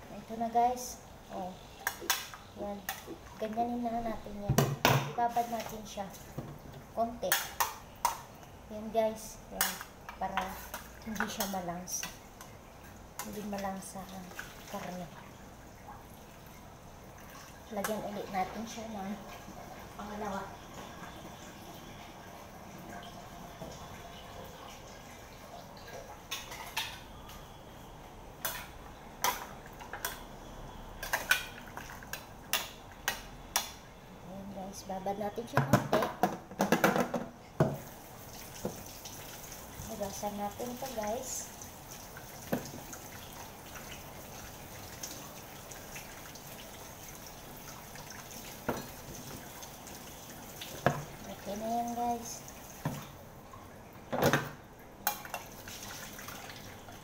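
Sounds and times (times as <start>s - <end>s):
kitchen tap running: 35.5s - 53.2s, 54.0s - 57.0s.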